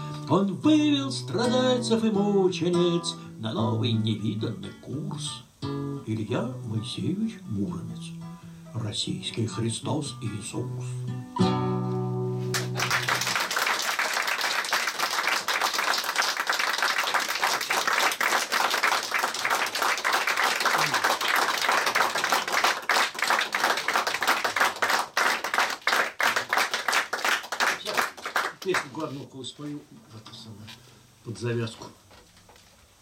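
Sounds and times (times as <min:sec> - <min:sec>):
acoustic guitar chord ringing: 0:10.6 - 0:13.3
audience applauding: 0:12.5 - 0:29.2.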